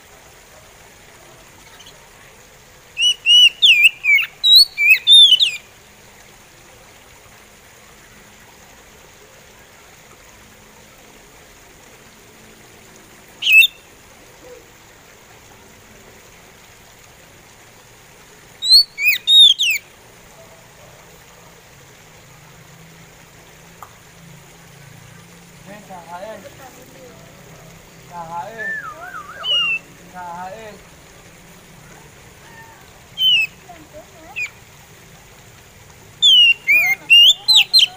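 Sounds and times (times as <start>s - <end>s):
faint steady hiss: 0.0s - 37.9s
bird whistling song: 3.0s - 5.7s, 13.4s - 13.8s, 18.6s - 19.9s, 28.5s - 29.9s, 33.2s - 33.6s, 34.3s - 34.6s, 36.2s - 37.9s.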